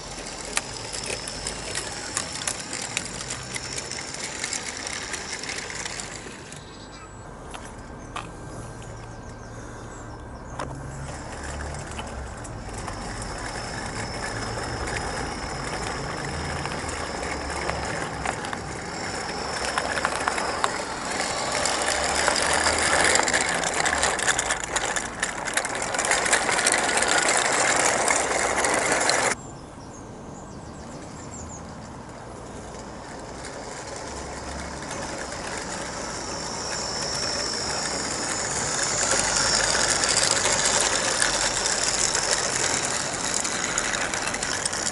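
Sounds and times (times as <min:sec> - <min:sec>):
electric motor whirring: 0:00.0 - 0:29.4, 0:32.7 - 0:44.9
model train wheels clattering: 0:00.0 - 0:29.4, 0:32.1 - 0:44.9.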